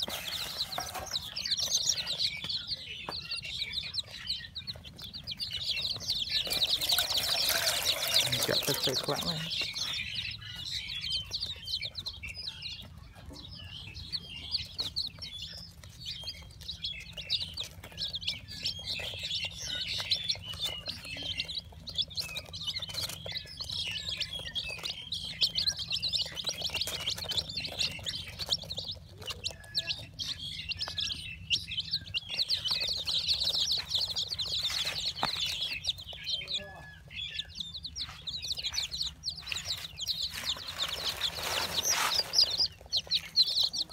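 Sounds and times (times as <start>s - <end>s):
chicks peeping: 0.0s - 43.9s.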